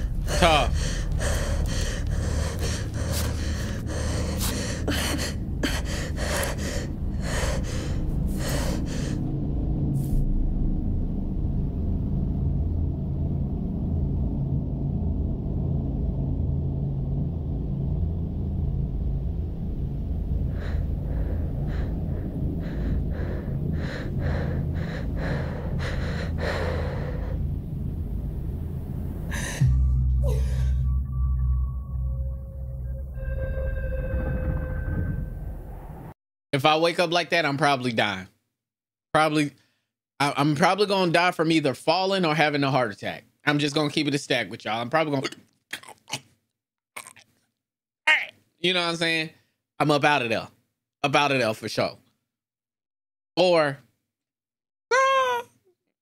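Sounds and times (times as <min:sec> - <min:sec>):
woman breathing heavily: 0:00.0 - 0:09.3, 0:20.4 - 0:27.7, 0:29.3 - 0:31.0
loud low drone: 0:00.0 - 0:36.2
low steady rumble: 0:00.0 - 0:36.2.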